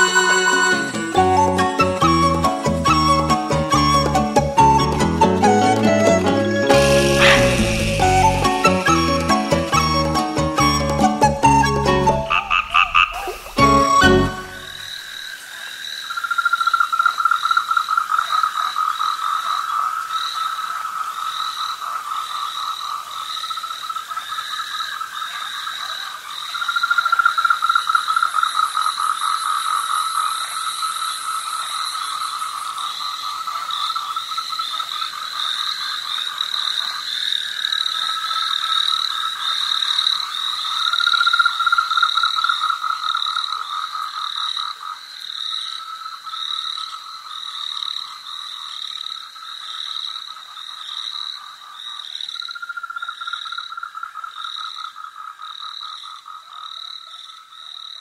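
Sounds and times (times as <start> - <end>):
higher pulsed calling: 0.0 - 14.9
frogs calling in pulsed trills: 6.7 - 58.0.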